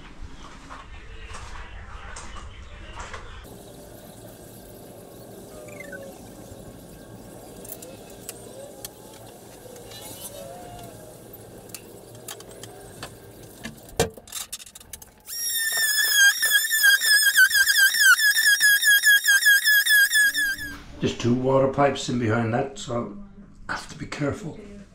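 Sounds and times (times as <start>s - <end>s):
handheld power tool whining: 15.3s - 20.8s.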